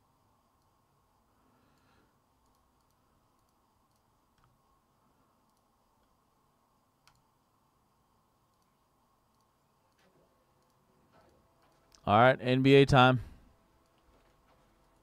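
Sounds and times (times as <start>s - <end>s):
soft sharp clicks: 1.8s - 4.6s, 5.4s - 6.2s, 7.0s - 7.3s, 8.5s - 8.7s, 9.3s - 10.0s.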